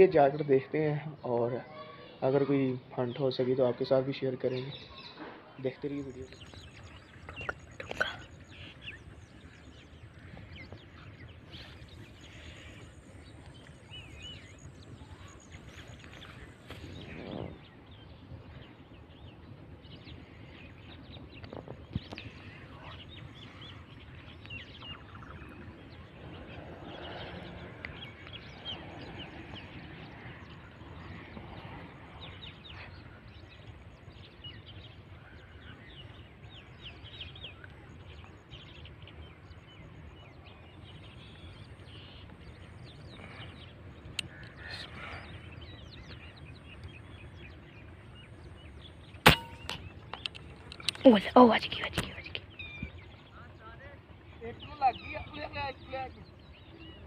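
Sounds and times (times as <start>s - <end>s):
low outdoor background noise: 0.0s - 57.0s
small birds chirping: 0.0s - 57.0s
sharp knock: 49.3s - 49.8s.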